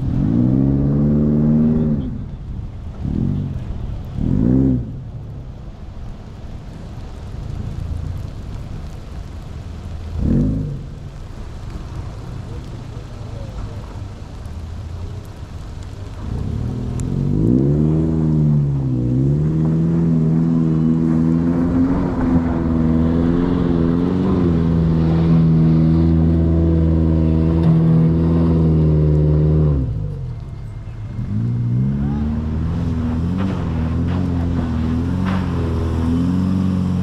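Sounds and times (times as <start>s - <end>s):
off-road engine revving hard: 0.0s - 2.2s, 16.2s - 30.0s, 31.2s - 37.0s.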